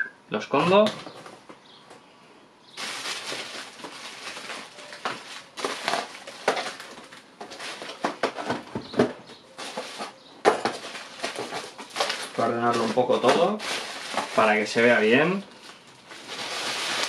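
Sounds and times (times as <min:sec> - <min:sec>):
plastic packaging crinkling: 0:02.8 - 0:08.5, 0:09.5 - 0:17.0.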